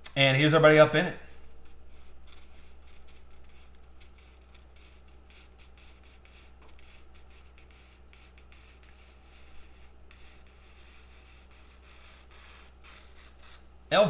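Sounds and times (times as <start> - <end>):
low electrical hum: 0.0 - 14.0
scratching and rubbing handling noises: 1.3 - 13.7.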